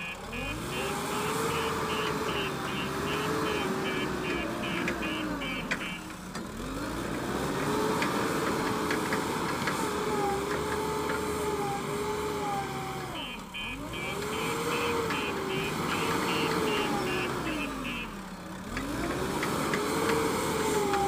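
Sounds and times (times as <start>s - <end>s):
rapid repeating beeping: 0.0s - 6.1s, 13.2s - 18.2s
diesel engine working: 0.0s - 21.0s.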